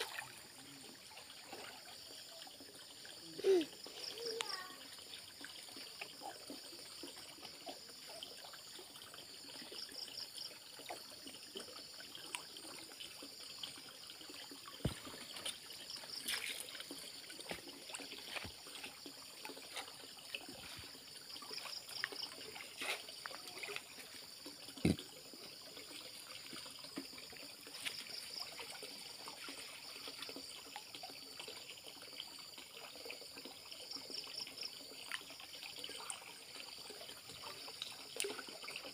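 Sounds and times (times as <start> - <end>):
muddy water sloshing: 0.0 - 9.8, 10.8 - 31.2
water splashes: 0.0 - 38.9.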